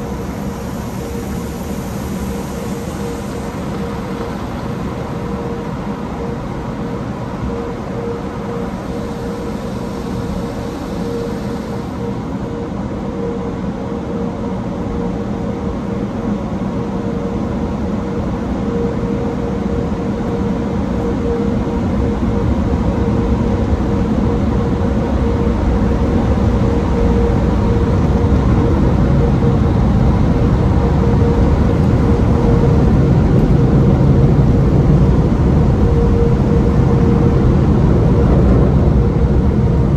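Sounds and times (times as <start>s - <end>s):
blower dryers humming: 0.0s - 39.9s.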